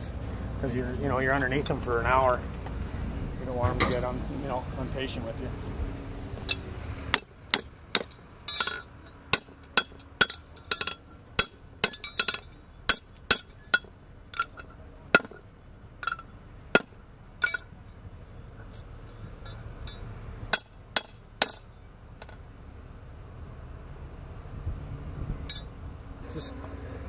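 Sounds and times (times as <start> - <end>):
hammer ringing on horseshoe on anvil: 7.2 - 15.4, 16.0 - 17.7, 19.4 - 21.8.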